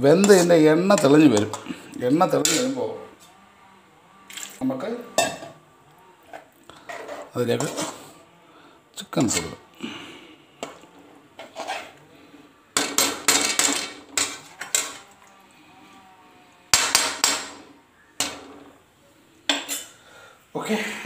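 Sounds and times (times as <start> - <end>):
ladle scraping metal pot: 0.0 - 3.2, 6.2 - 8.2, 10.6 - 12.0, 12.7 - 15.4, 16.7 - 18.8.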